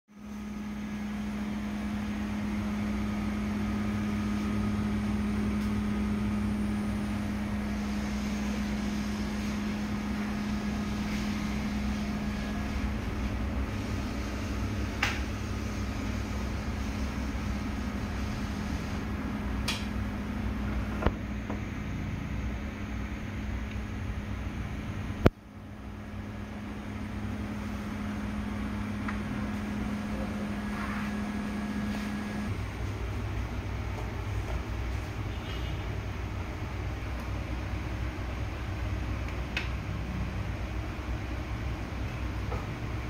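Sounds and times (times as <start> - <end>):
steady machine hum: 0.1 - 43.0.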